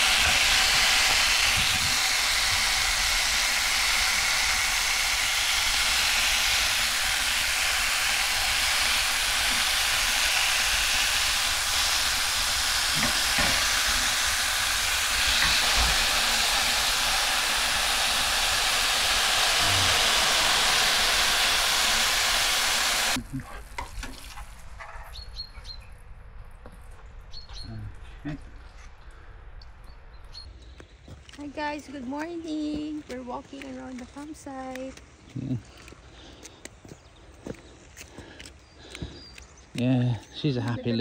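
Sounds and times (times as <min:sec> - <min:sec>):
bacon sizzling in a frying pan: 0:00.0 - 0:24.6.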